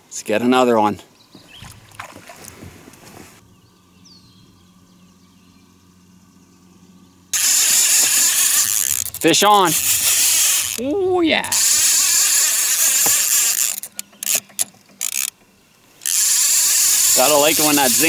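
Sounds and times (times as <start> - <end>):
faint motor hum: 1.1 - 18.0
fishing reel drag screaming: 7.4 - 14.4, 15.0 - 15.3, 16.0 - 18.0.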